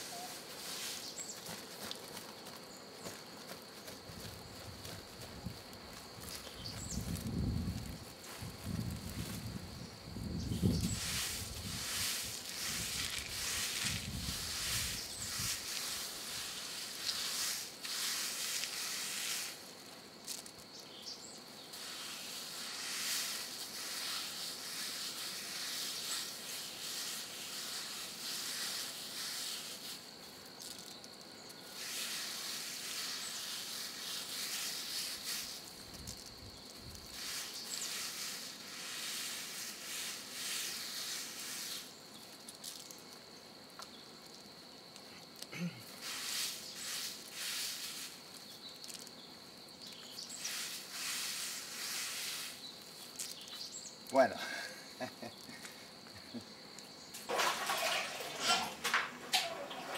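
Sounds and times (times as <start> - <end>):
high insect drone: 0.0 - 59.9
coffee beans rattling on concrete: 10.9 - 20.8, 21.8 - 43.2, 45.3 - 49.2, 49.8 - 53.6, 57.2 - 59.9.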